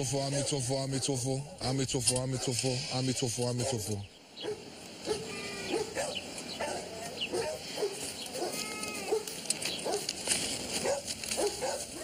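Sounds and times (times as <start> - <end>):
goat bleating: 8.4 - 9.2.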